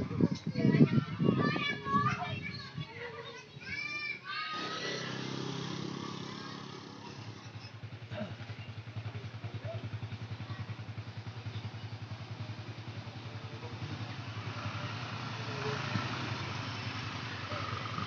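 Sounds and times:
small motorcycle engine running: 0:04.5 - 0:18.0.

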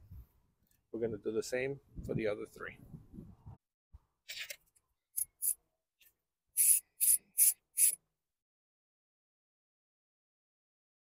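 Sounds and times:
ratchet clicking: 0:06.6 - 0:08.0.

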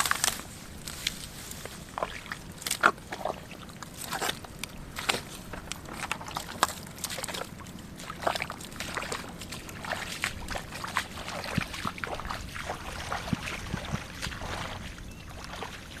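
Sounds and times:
footsteps splashing through mud: 0:00.0 - 0:16.0.

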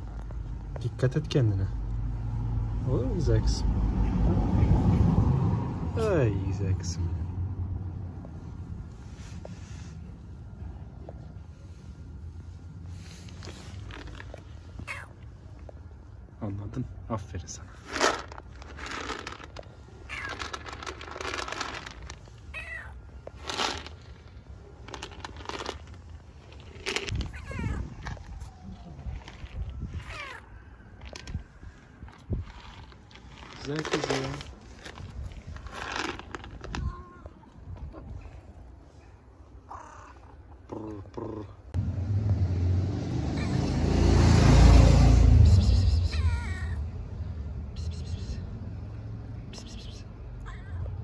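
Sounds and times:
cat meowing: 0:14.8 - 0:15.2, 0:20.1 - 0:20.4, 0:22.5 - 0:23.0, 0:27.3 - 0:28.3, 0:29.9 - 0:30.5, 0:46.1 - 0:46.8
loud engine rumble: 0:41.7 - 0:50.3.

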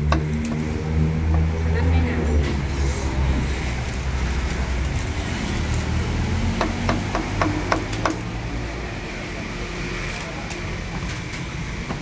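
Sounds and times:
cleaver chopping on wooden board: 0:06.6 - 0:08.3.

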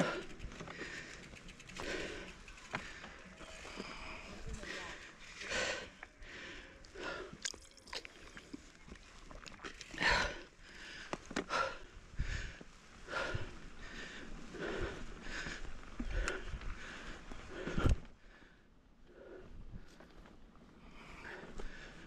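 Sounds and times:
bike clicks and rattles: 0:00.0 - 0:04.7, 0:13.4 - 0:18.2
person breathing hard: 0:00.0 - 0:07.5, 0:09.9 - 0:20.0, 0:20.8 - 0:22.0.

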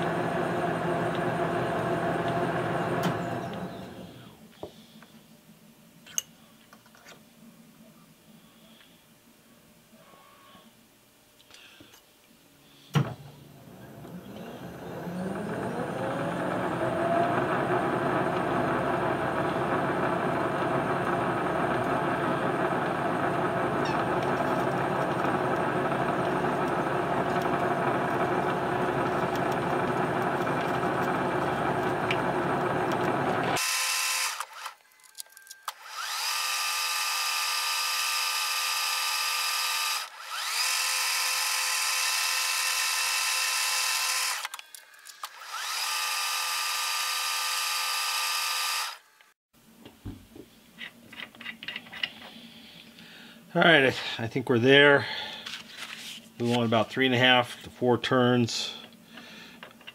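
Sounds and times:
metal lathe whining: 0:13.6 - 0:34.8, 0:35.6 - 0:44.6, 0:45.2 - 0:49.0.

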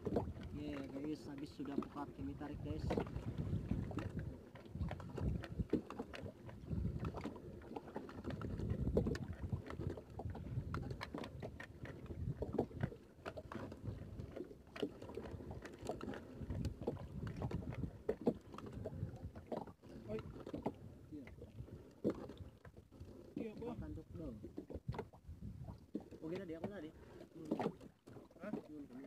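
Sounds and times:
wind on microphone: 0:00.0 - 0:01.1, 0:02.2 - 0:07.4, 0:08.2 - 0:13.0, 0:16.4 - 0:22.6, 0:23.5 - 0:26.0.

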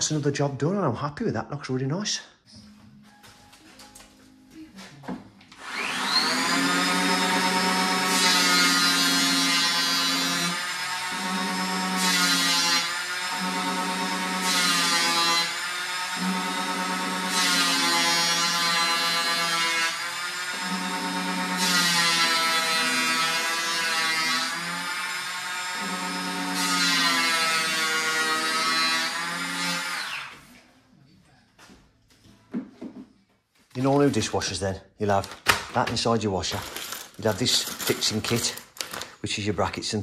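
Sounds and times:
palm sander motor whine: 0:05.6 - 0:10.4.

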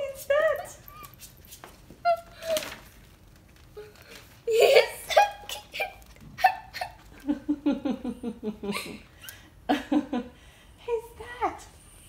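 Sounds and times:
girl giggling and crying: 0:02.0 - 0:02.8, 0:03.8 - 0:10.2.

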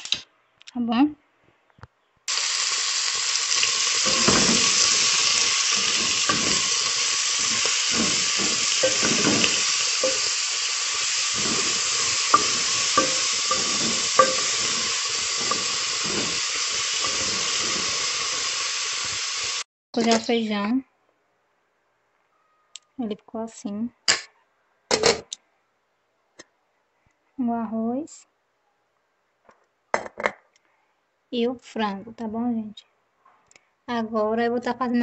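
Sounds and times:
meat and vegetables sizzling: 0:02.3 - 0:19.7
wooden spoon stirring: 0:02.7 - 0:19.6
spoon knocking against pot: 0:04.0 - 0:10.4, 0:11.0 - 0:18.0.

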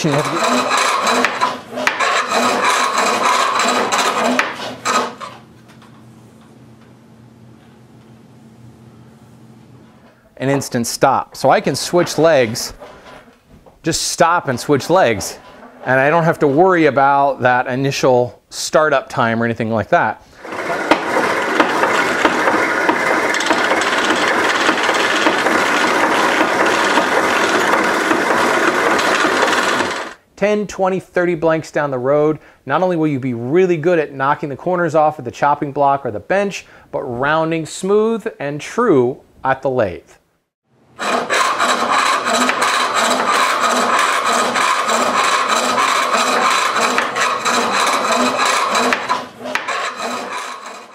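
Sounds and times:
chisel shaving wood on lathe: 0:00.0 - 0:05.4, 0:14.2 - 0:17.3, 0:20.4 - 0:30.2, 0:41.0 - 0:50.9.

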